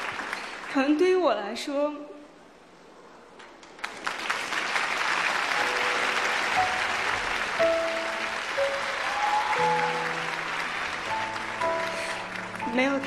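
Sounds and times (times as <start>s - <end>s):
audience applause: 0.0s - 0.8s, 3.6s - 13.0s
soft background music: 5.6s - 13.0s.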